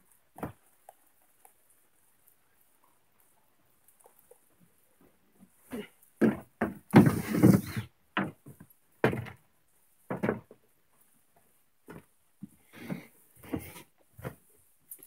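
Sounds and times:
footfalls on deck and steps: 6.2s - 9.5s, 10.1s - 10.7s, 11.4s - 14.4s.

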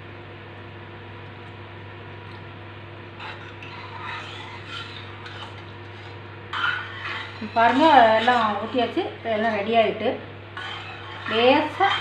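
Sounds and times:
low background hum: 0.0s - 12.0s
ladle scraping steel pan: 3.2s - 9.8s, 10.6s - 12.0s.

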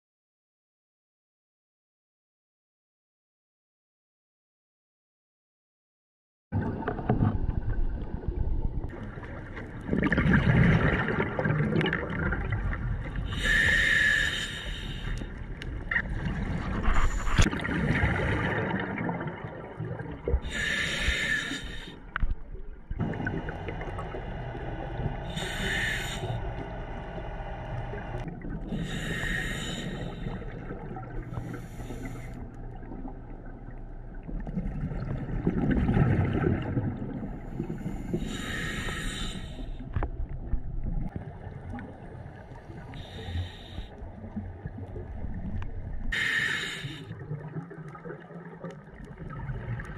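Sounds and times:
exhaled bubbles bubbling: 6.6s - 14.1s, 15.3s - 39.0s, 40.0s - 49.9s
regulator hissing inhalations: 13.3s - 15.4s, 20.5s - 22.0s, 25.2s - 27.0s, 28.7s - 30.5s, 31.3s - 32.4s, 37.7s - 39.9s, 42.9s - 43.9s, 46.2s - 47.1s.

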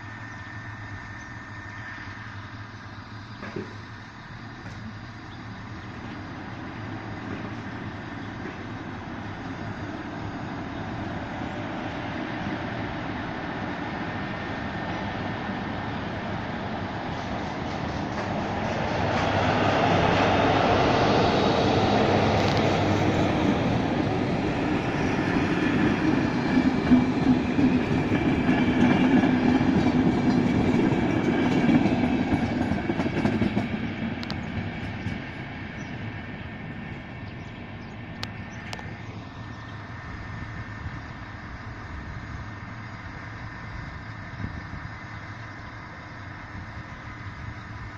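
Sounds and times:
train rumbling past: 0.0s - 47.9s
wheels clacking over rail joints: 21.5s - 36.0s.

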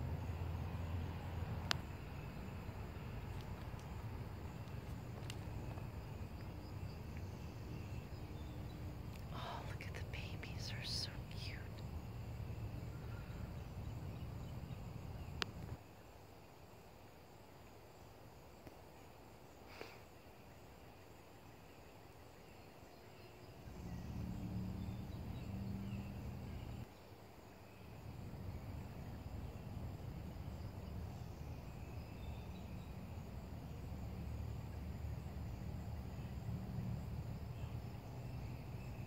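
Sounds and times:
low steady hum: 0.0s - 15.8s
faint high insect chirping: 0.0s - 39.0s.

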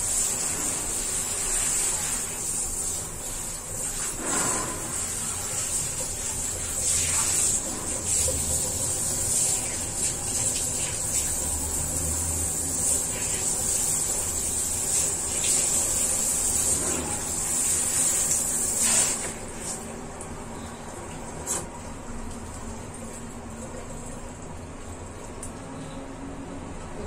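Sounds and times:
shower head spraying water: 0.0s - 19.8s.

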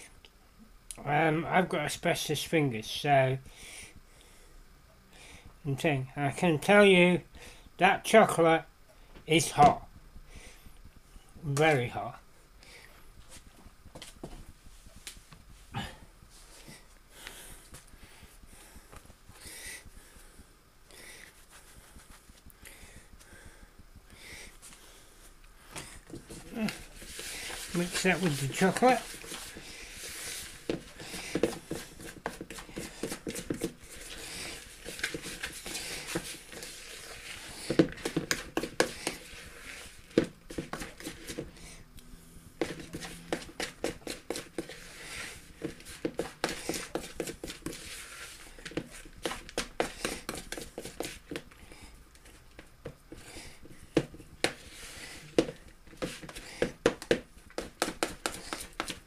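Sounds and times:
spoon scraping plastic bowl: 26.1s - 41.6s, 42.6s - 51.4s, 54.0s - 59.0s.

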